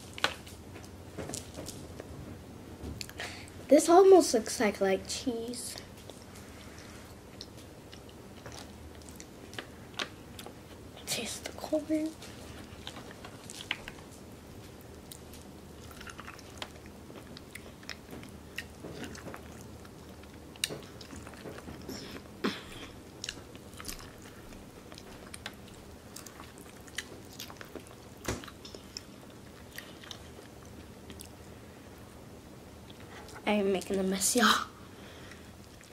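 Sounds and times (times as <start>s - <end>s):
chewing corn on the cob: 7.3s - 10.6s, 12.6s - 31.4s.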